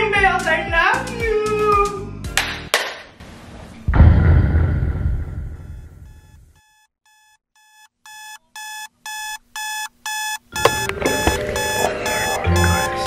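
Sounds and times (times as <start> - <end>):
music: 0.0 - 2.8, 10.6 - 13.0
low boom: 3.8 - 6.5
digital alarm clock beeping: 6.1 - 13.0.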